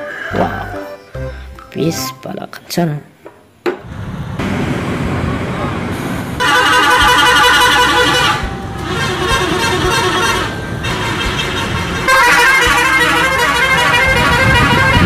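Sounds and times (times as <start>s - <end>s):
bus engines running: 3.8s - 15.0s
musical air horns warbling: 6.4s - 15.0s.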